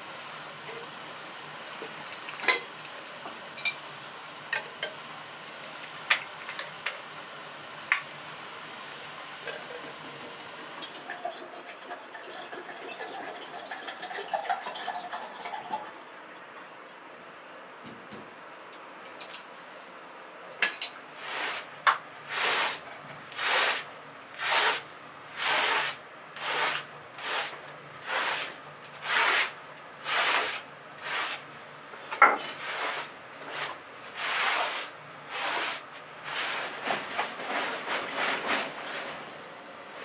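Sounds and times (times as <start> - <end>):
rubbing strokes on plywood: 23.4 - 24.8, 25.4 - 31.4, 32.6 - 39.1.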